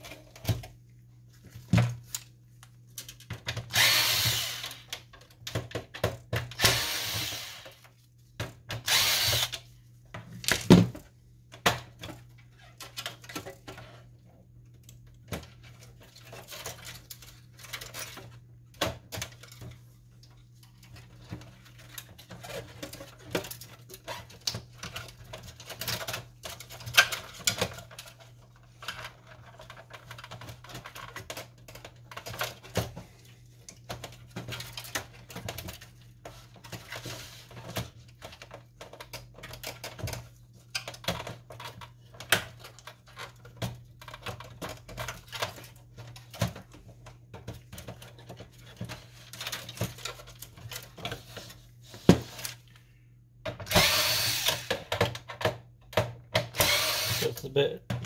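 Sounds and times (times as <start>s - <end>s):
electric screwdriver spinning: 3.7s - 4.9s, 6.6s - 7.8s, 8.8s - 9.6s, 53.7s - 54.8s, 56.6s - 57.4s.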